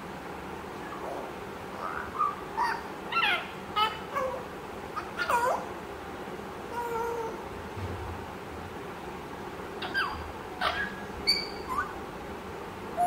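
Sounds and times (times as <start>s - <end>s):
parrot calls: 0.7s - 5.8s, 9.8s - 12.0s
parrot whistling: 9.8s - 12.0s.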